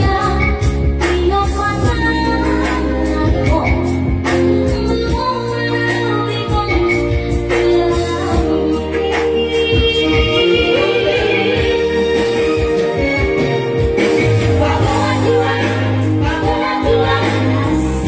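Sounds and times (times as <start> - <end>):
electronic keyboard: 0.0 - 18.0
voices singing: 8.1 - 12.5, 14.0 - 18.0.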